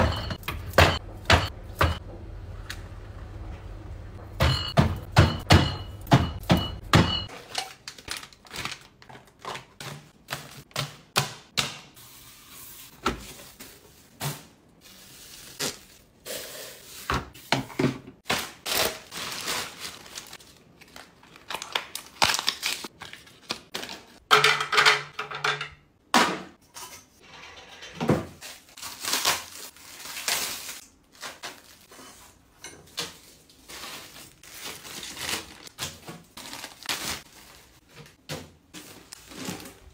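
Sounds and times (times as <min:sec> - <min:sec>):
plastic packaging crinkling: 0:07.4 - 0:09.8, 0:18.3 - 0:23.7, 0:28.6 - 0:31.8, 0:33.6 - 0:37.8.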